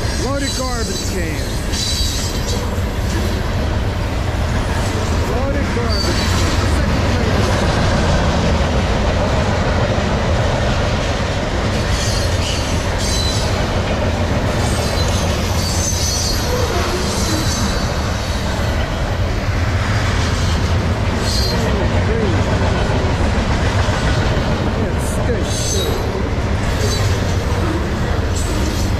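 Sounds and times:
freight train wheels rumbling: 0:00.0 - 0:28.9
high-pitched wheel squeals: 0:14.9 - 0:17.9.

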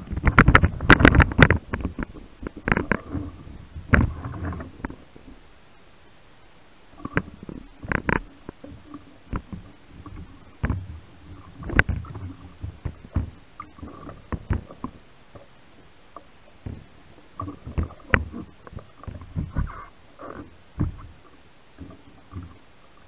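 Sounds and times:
water slapping against camera housing: 0:00.0 - 0:03.2, 0:07.0 - 0:15.0, 0:16.6 - 0:22.6.

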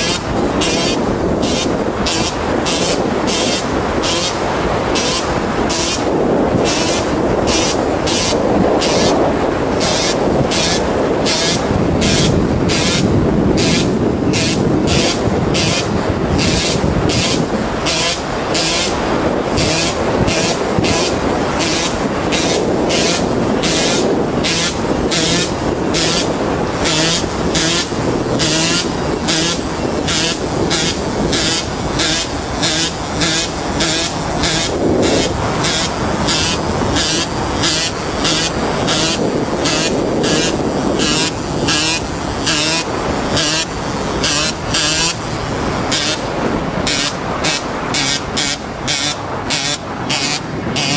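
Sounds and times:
road and wind noise: 0:00.0 - 0:50.9.

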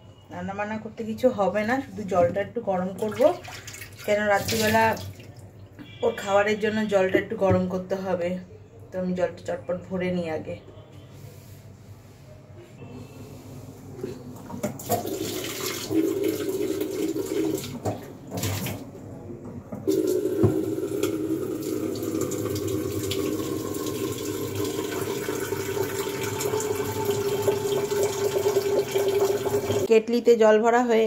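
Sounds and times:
tap water running into kettle: 0:14.6 - 0:18.8, 0:19.8 - 0:29.9.

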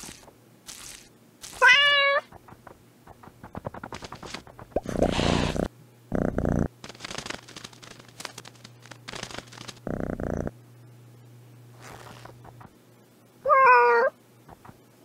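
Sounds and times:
short noisy bursts: 0:03.2 - 0:05.7
cat meowing: 0:13.4 - 0:14.1.

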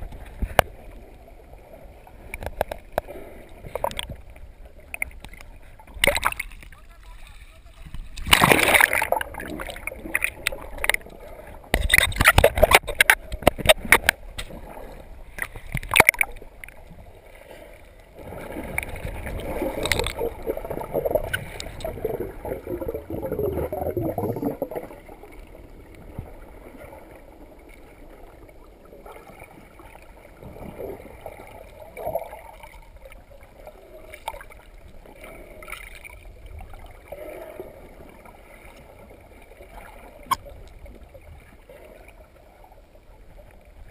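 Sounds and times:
water splashing: 0:00.0 - 0:42.3
water bubbling: 0:07.9 - 0:17.2, 0:18.1 - 0:42.0
muffled underwater hush: 0:17.4 - 0:25.1.

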